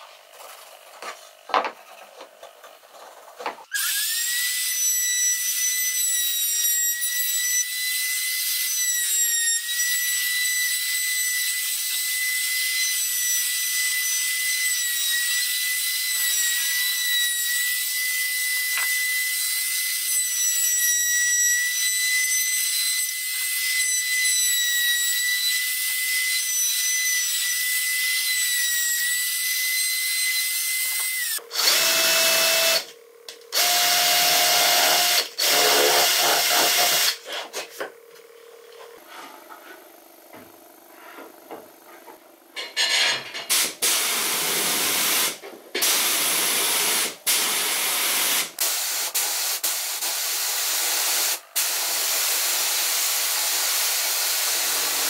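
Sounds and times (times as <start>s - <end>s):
router high-pitched whine: 3.8s - 49.9s, 51.2s - 55.0s
cordless drill into wood: 30.9s - 32.9s, 33.5s - 37.2s.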